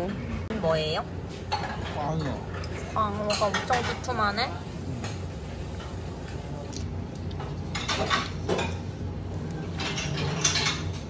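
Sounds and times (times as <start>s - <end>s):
steady low hum: 0.0s - 11.0s
dishes and cutlery clinking: 1.5s - 4.2s, 7.4s - 11.0s.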